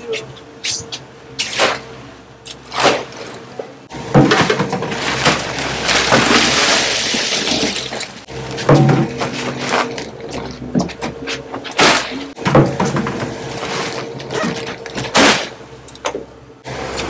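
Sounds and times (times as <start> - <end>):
engine hum: 0.0 - 17.0
crushed ice crunching: 4.3 - 10.6, 13.4 - 15.6
sharp knocks and thumps: 8.6 - 13.4.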